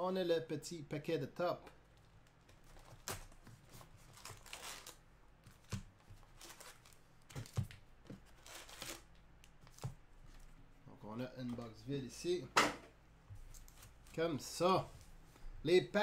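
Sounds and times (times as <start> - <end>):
card packs rustling and tapping: 5.5 - 8.8.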